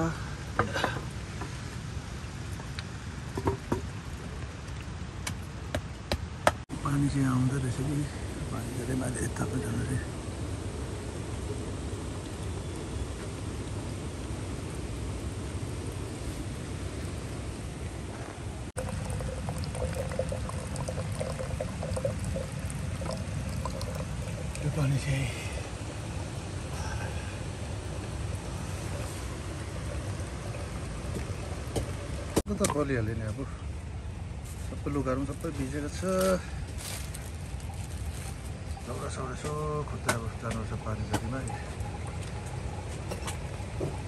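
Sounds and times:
water pouring and splashing: 1.0 - 5.6, 18.7 - 32.8, 35.5 - 44.0
steady rain falling: 6.8 - 44.0
bubbling gurgles: 18.8 - 32.4, 40.3 - 44.0.

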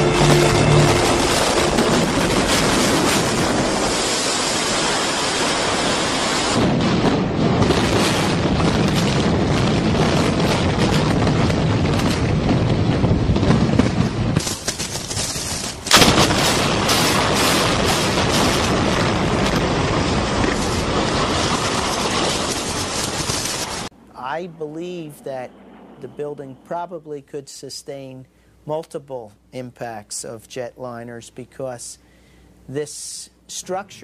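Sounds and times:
demolition charges firing: 0.0 - 23.9
sharp blast: 0.0 - 23.9.

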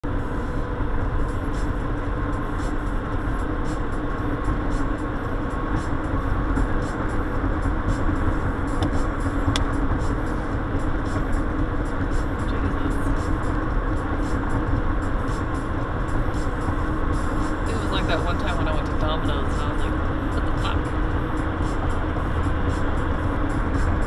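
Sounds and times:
car road and engine noise: 0.0 - 24.0.

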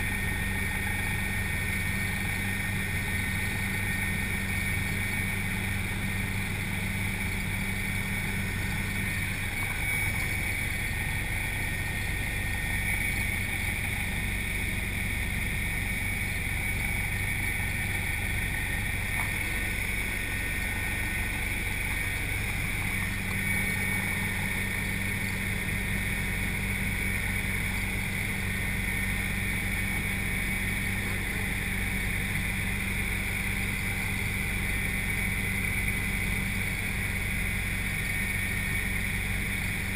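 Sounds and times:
helicopter rotor and engine drone: 0.0 - 39.9
high whine: 0.0 - 39.9.

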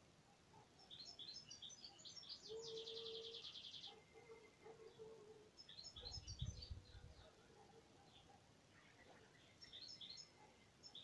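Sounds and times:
songbird singing: 0.0 - 11.0.

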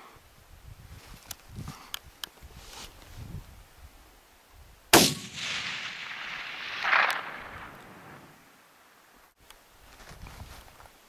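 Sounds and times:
rifle shot with rolling report: 4.9 - 8.4.

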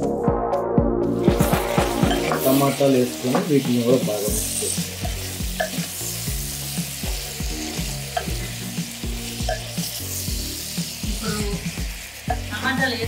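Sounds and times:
food sizzling in a pot: 1.1 - 13.0.

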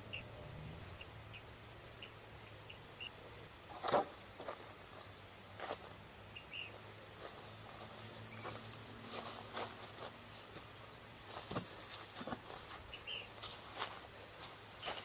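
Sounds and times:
low steady hum: 0.0 - 15.0
footsteps crunching on dry grass: 3.7 - 15.0.

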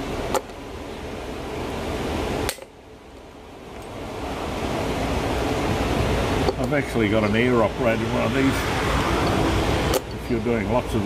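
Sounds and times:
pop-rivet tool snap: 2.4 - 2.7.

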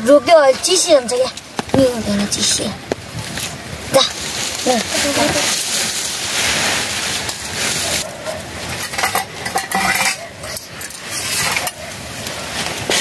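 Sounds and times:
metal utensils clinking: 8.0 - 12.0.

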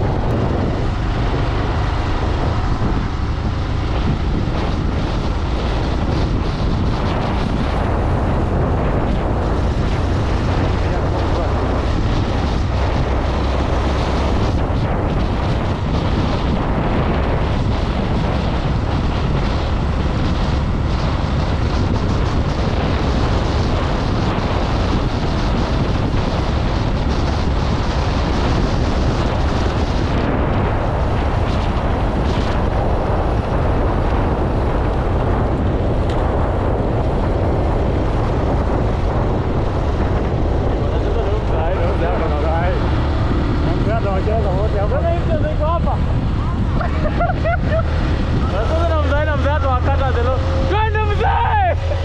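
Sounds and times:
wind buffeting microphone: 0.0 - 52.0.

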